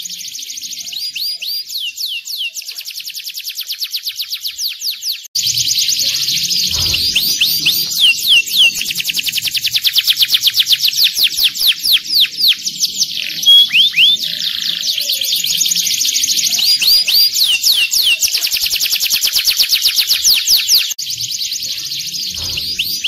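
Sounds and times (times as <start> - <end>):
canary singing trills: 0.0 - 23.0
canary downward-swept whistles: 6.7 - 14.2.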